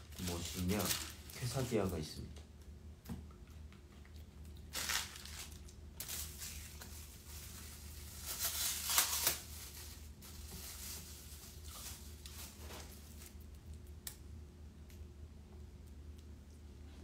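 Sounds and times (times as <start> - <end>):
food packaging crinkling: 0.0 - 1.9, 4.4 - 13.8.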